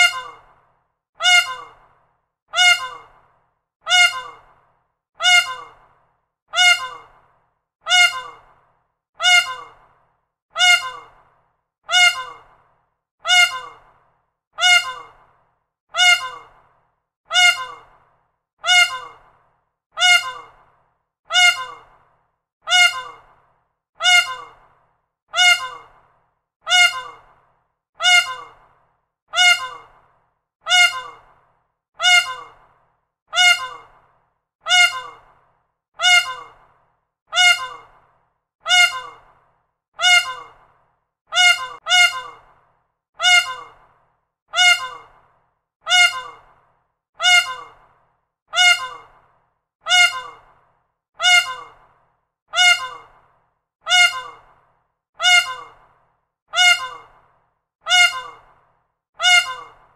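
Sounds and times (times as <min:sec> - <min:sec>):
peacock calling: 0:00.0 - 0:00.5, 0:01.2 - 0:01.8, 0:02.6 - 0:03.2, 0:03.9 - 0:04.5, 0:05.2 - 0:05.8, 0:06.6 - 0:07.2, 0:07.9 - 0:08.5, 0:09.2 - 0:09.8, 0:10.6 - 0:11.2, 0:11.9 - 0:12.5, 0:13.3 - 0:13.9, 0:14.6 - 0:15.2, 0:16.0 - 0:16.6, 0:17.3 - 0:17.9, 0:18.6 - 0:19.2, 0:20.0 - 0:20.6, 0:21.3 - 0:22.0, 0:22.7 - 0:23.3, 0:24.0 - 0:24.6, 0:25.4 - 0:26.0, 0:26.7 - 0:27.3, 0:28.0 - 0:28.6, 0:29.4 - 0:30.0, 0:30.7 - 0:31.3, 0:32.0 - 0:32.6, 0:33.4 - 0:34.0, 0:34.7 - 0:35.3, 0:36.0 - 0:36.6, 0:37.3 - 0:37.9, 0:38.7 - 0:39.3, 0:40.0 - 0:40.6, 0:41.3 - 0:42.5, 0:43.2 - 0:43.8, 0:44.6 - 0:45.2, 0:45.9 - 0:46.5, 0:47.2 - 0:47.8, 0:48.6 - 0:49.1, 0:49.9 - 0:50.5, 0:51.2 - 0:51.8, 0:52.6 - 0:53.2, 0:53.9 - 0:54.5, 0:55.2 - 0:55.8, 0:56.6 - 0:57.1, 0:57.9 - 0:58.5, 0:59.2 - 0:59.9.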